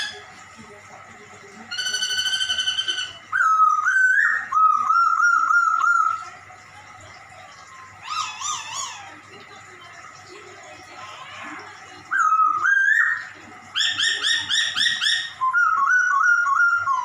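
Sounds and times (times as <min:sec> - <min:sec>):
bird trilled call: 0:01.7 - 0:06.2.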